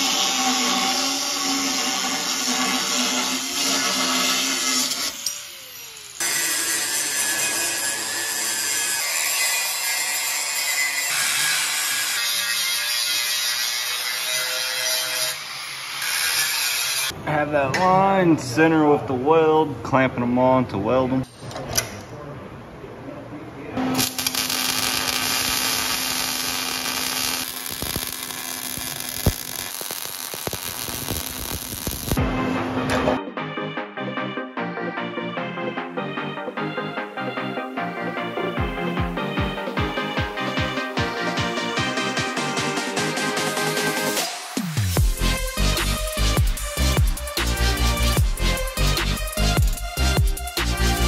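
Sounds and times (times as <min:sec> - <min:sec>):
angle grinder grinding steel: 0:00.0 - 0:17.1, 0:23.8 - 0:32.2
welder buzzing and crackling: 0:00.0 - 0:17.1, 0:23.8 - 0:32.2.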